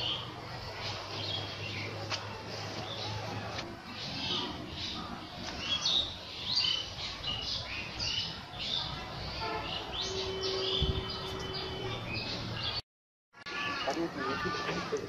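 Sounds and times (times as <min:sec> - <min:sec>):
small birds chirping: 0:00.0 - 0:12.8.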